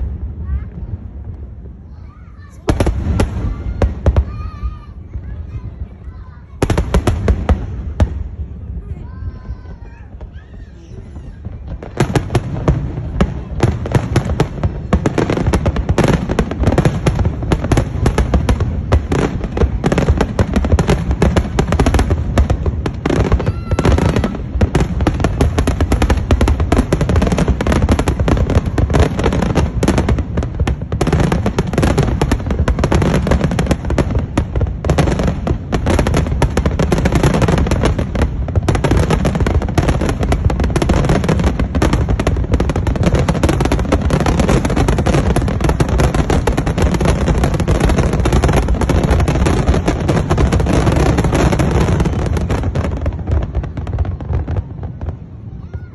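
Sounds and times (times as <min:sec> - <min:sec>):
fireworks bursting and crackling: 0:00.0 - 0:55.9.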